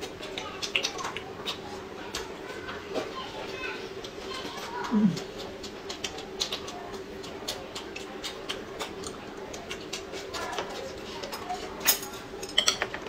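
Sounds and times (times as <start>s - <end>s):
chewing and mouth clicks: 0.0s - 2.3s, 2.9s - 11.8s
faint hum: 0.0s - 13.0s
chopsticks clicking: 4.8s - 12.8s.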